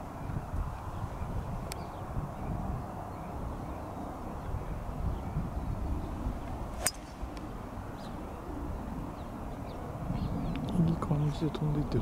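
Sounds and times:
wind rumbling on microphone: 0.0 - 12.0
golf club striking ball: 6.8 - 7.5.

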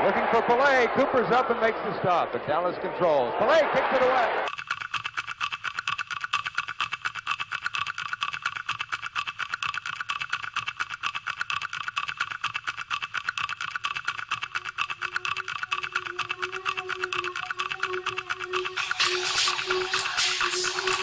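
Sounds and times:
fast mechanical clatter: 4.5 - 21.0.

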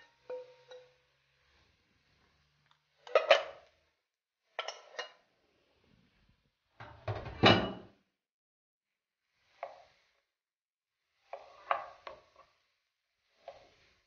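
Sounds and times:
spatula scraping frying pan: 11.2 - 14.0.

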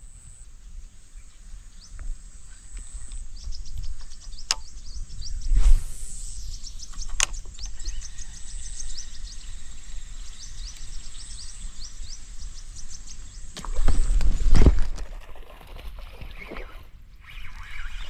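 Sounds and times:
sharp click: 4.4 - 4.7, 6.9 - 7.7.

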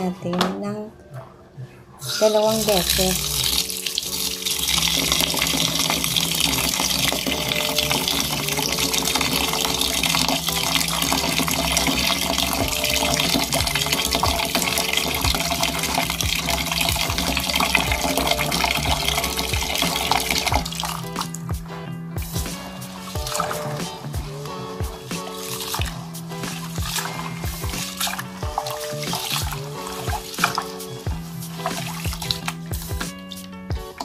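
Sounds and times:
tap water pouring into metal pot: 2.2 - 21.3, 31.6 - 32.6.

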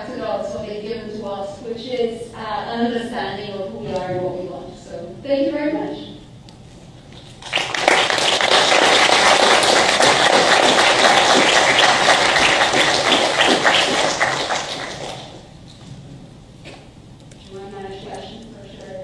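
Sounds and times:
audience applauding: 7.2 - 15.5.

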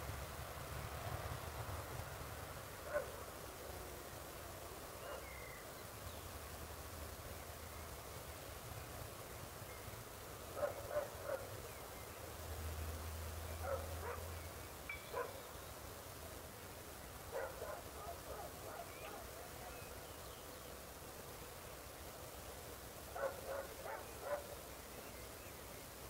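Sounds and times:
dog barking: 2.9 - 3.2, 5.0 - 5.3, 10.6 - 11.5, 13.6 - 14.3, 15.1 - 15.4, 17.3 - 19.6, 23.2 - 24.6.

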